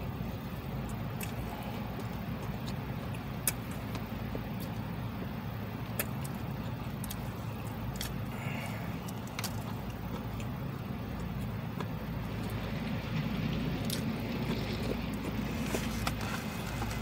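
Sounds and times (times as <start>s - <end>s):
car engine low hum: 0.0s - 17.0s
chewing clicks: 0.8s - 4.9s, 5.8s - 8.3s, 9.0s - 12.6s, 13.8s - 17.0s.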